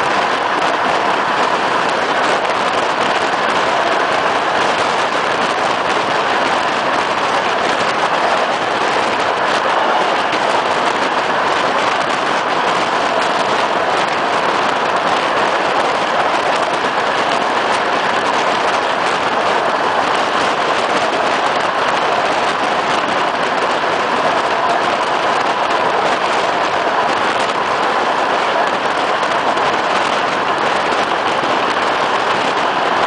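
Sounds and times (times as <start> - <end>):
train wind and wheel noise: 0.0 - 33.0.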